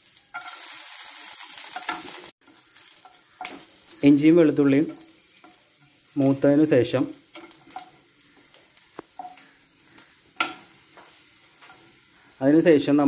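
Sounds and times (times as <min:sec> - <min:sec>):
faint frying sizzle: 0:00.0 - 0:13.0
wooden spatula tapping pan: 0:07.3 - 0:09.5, 0:10.4 - 0:11.9.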